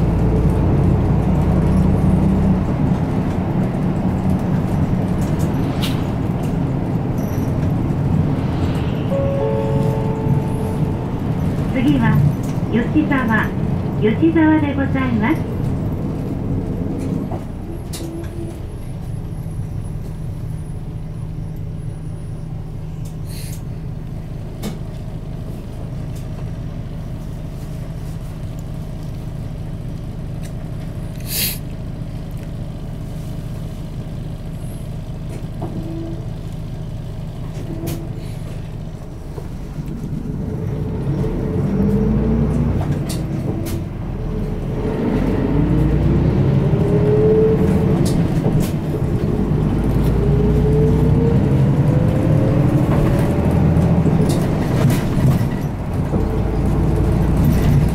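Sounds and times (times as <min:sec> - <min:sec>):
bus diesel engine running: 0:00.0 - 0:57.9
air hiss: 0:31.2 - 0:31.6.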